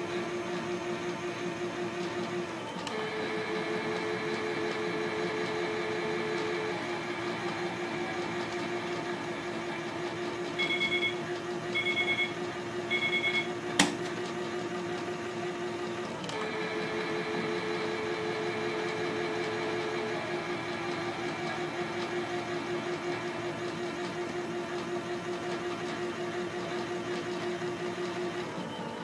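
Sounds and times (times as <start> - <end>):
toy washing machine motor whirring: 0.0 - 13.5, 14.2 - 29.0
short high beeps: 10.6 - 11.2, 11.8 - 13.5.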